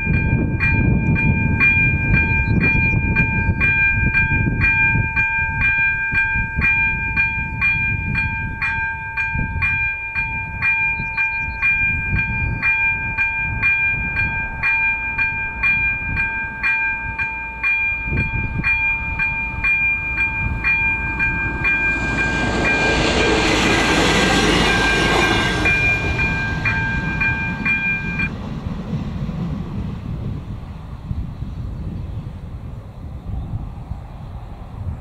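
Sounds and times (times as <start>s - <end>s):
crossing warning bell ringing: 0.0s - 28.3s
diesel railcar passing: 0.0s - 35.0s.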